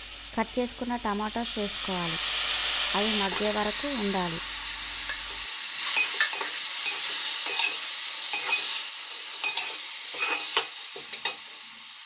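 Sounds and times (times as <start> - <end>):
tomatoes sizzling in hot oil: 0.0 - 12.0
metal spoon scraping a pan: 5.1 - 11.5.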